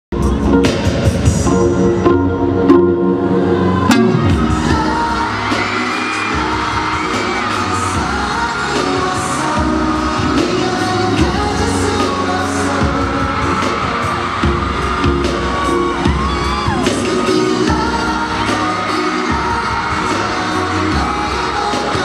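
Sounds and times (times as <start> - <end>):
live pop music with singing: 0.1 - 22.0
audience screaming: 3.2 - 22.0.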